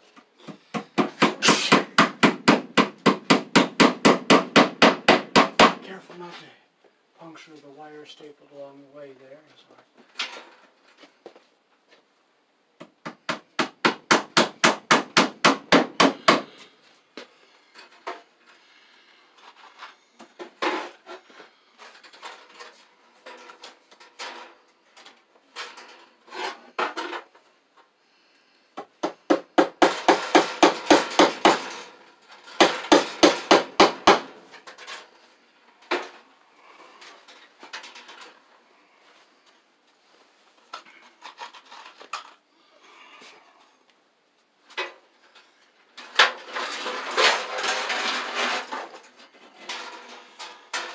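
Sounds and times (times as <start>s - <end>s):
hammer tapping staples into wood: 12.8s - 16.5s.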